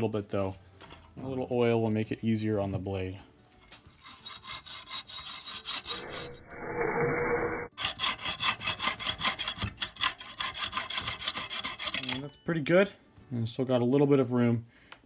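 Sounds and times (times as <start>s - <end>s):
hacksaw cutting metal bolt: 7.8s - 12.2s.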